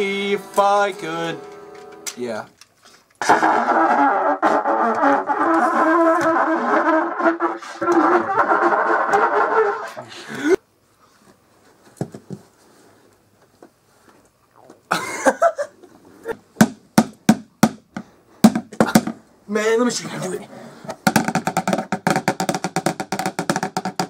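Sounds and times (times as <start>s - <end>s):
trumpet playing held notes: 0.0s - 2.1s, 3.2s - 10.0s.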